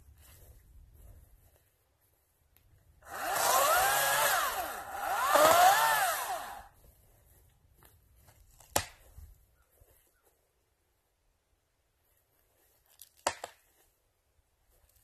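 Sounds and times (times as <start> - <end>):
battery chainsaw motor whining: 3.0 - 6.7.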